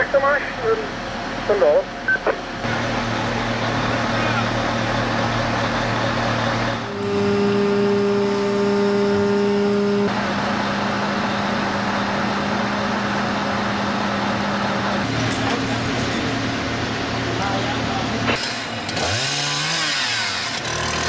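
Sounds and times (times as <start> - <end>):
strong pitched hum: 0.0 - 15.2
truck engine running: 0.0 - 21.0.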